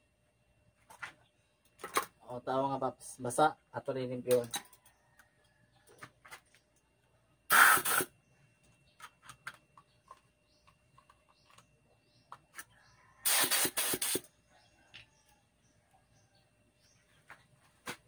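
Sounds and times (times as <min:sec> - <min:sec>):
air hissing through hose fitting: 0:07.5 - 0:08.1, 0:13.2 - 0:14.3.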